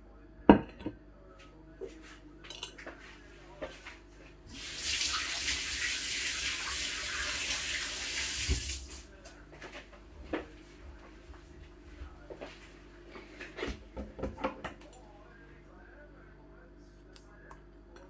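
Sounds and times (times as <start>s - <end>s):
tap running into sink: 8.2s - 9.0s.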